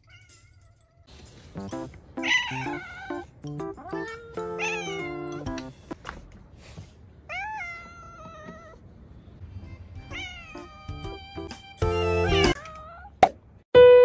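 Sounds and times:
cat meowing: 2.2 - 5.3, 7.3 - 8.8
background music with stepped notes: 2.7 - 6.0, 9.6 - 12.6.

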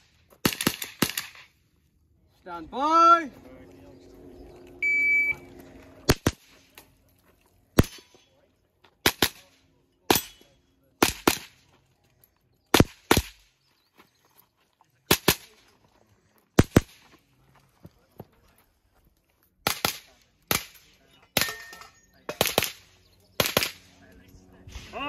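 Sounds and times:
rifle shots: 0.0 - 1.5, 6.0 - 6.7, 7.8 - 8.1, 9.0 - 10.4, 11.0 - 11.7, 12.7 - 13.5, 15.1 - 15.6, 16.6 - 17.0, 19.6 - 21.6, 22.3 - 24.0
shot timer beep: 4.8 - 5.4.

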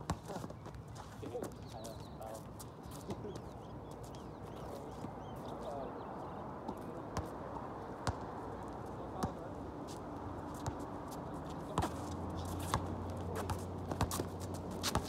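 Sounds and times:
basketball bouncing on asphalt: 0.0 - 0.7, 6.7 - 7.4, 8.0 - 8.4, 9.2 - 9.5, 10.5 - 10.8, 11.7 - 15.0
open-air background noise: 0.0 - 15.0.

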